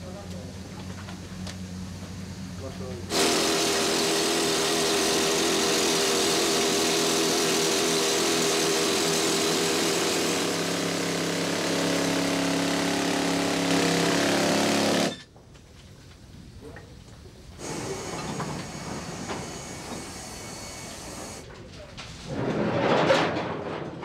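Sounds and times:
pneumatic rock drill hammering: 3.1s - 15.3s, 17.6s - 21.4s.

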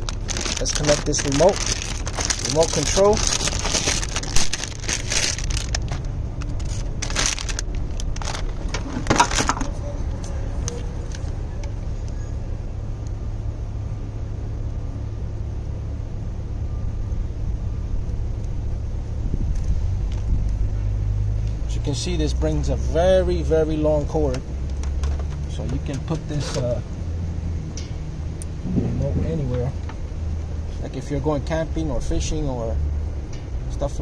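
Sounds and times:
plastic bag crinkling: 0.0s - 9.7s
low rumble: 0.0s - 12.6s, 28.2s - 30.8s.

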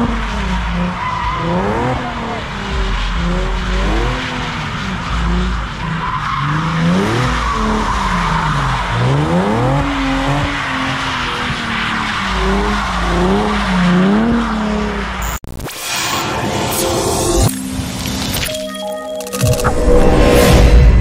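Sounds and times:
car engine revving: 0.0s - 15.4s.

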